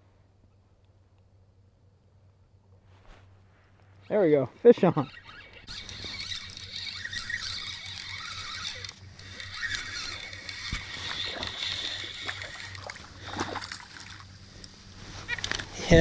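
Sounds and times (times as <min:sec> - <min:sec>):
low hum: 0:00.0 - 0:16.0
fishing reel cranking: 0:04.0 - 0:16.0
water splashes: 0:10.9 - 0:14.3.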